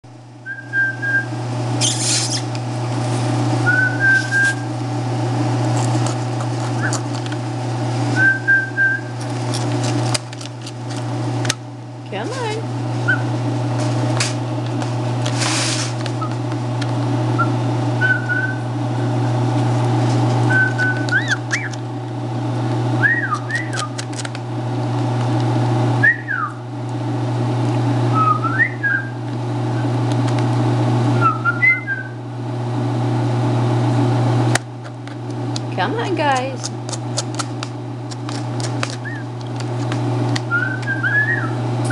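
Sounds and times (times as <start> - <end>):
fan humming: 0.0 - 41.9
chicks whistling peeps: 0.5 - 2.5, 3.6 - 4.7, 6.7 - 7.1, 8.1 - 9.2, 13.0 - 13.4, 17.3 - 19.2, 20.5 - 21.8, 23.0 - 24.0, 26.0 - 26.6, 28.1 - 29.2, 31.2 - 32.2, 38.9 - 39.3, 40.5 - 41.9
chicks peeping inside eggs: 5.4 - 11.6, 16.1 - 22.3, 22.9 - 24.4, 36.2 - 41.6
scratchy rustle: 15.3 - 16.0.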